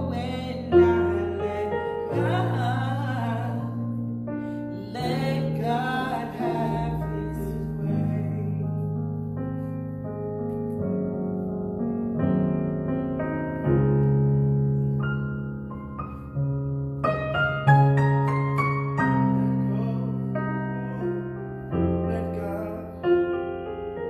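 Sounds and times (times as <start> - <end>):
person singing: 0.0 - 4.0, 4.7 - 8.9
electric piano chords: 0.0 - 24.0.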